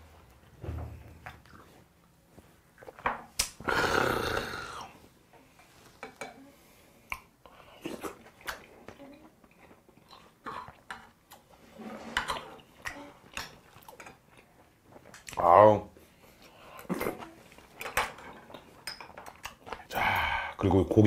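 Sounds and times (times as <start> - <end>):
chewing: 1.2 - 3.0, 7.0 - 15.4, 16.0 - 19.9.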